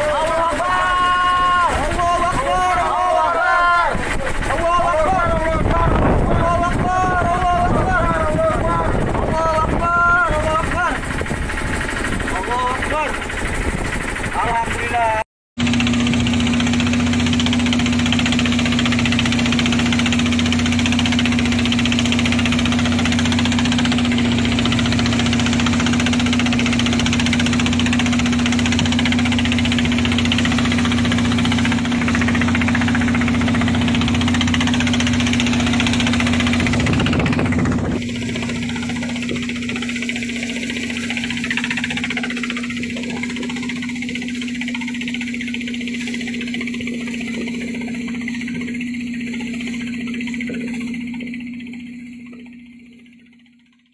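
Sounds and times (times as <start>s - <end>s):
boat engine drone: 0.0s - 53.9s
rough sea water: 0.0s - 53.9s
wind noise: 3.9s - 12.3s, 13.4s - 14.3s, 26.4s - 40.3s.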